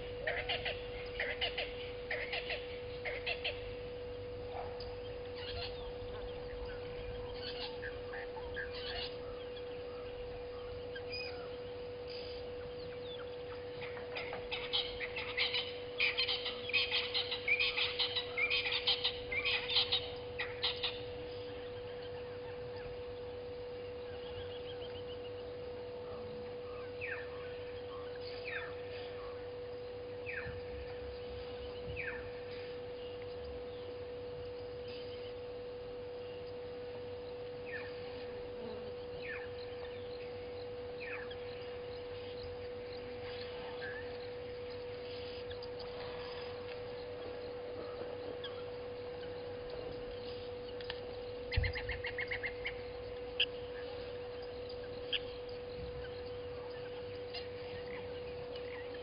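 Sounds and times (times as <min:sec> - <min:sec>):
birds chirping: 0:00.0 - 0:59.0
electrical hum: 0:00.0 - 0:59.0
short falling bird calls: 0:04.7 - 0:25.3.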